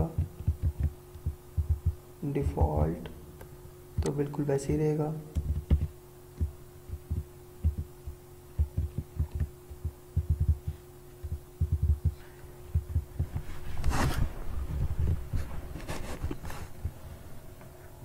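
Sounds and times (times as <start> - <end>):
muffled keyboard and mouse thumps: 0.0 - 2.0, 4.0 - 4.2, 5.3 - 17.0
steady low hum: 0.0 - 18.0.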